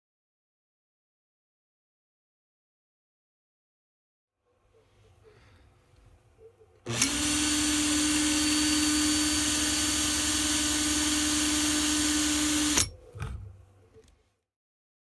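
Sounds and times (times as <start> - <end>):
power drill whining: 6.8 - 12.9.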